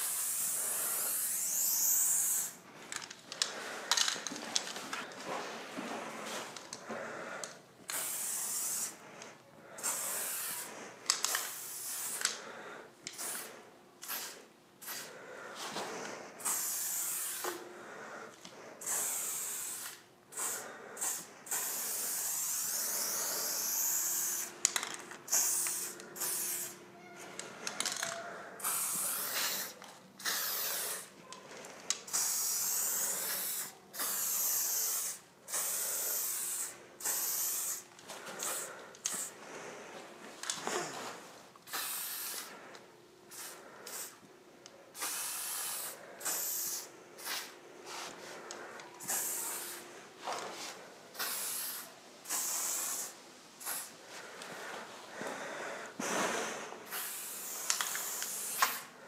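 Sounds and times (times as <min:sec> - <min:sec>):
spray paint can hissing: 0:00.0 - 0:02.6, 0:07.9 - 0:09.0, 0:09.8 - 0:12.4, 0:13.1 - 0:15.1, 0:16.4 - 0:17.6, 0:18.8 - 0:26.8, 0:28.6 - 0:31.1, 0:32.1 - 0:37.8, 0:38.4 - 0:39.3, 0:41.7 - 0:42.5, 0:43.3 - 0:44.2, 0:45.0 - 0:47.5, 0:49.0 - 0:49.8, 0:51.2 - 0:53.9, 0:56.9 - 0:58.9.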